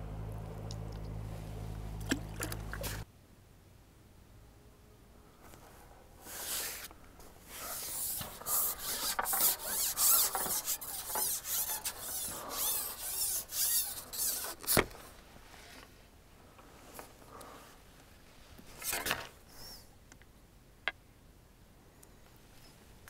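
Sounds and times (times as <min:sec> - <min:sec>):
fishing pole sections scraping: 0:06.2 - 0:06.9, 0:07.5 - 0:15.0, 0:18.7 - 0:19.8.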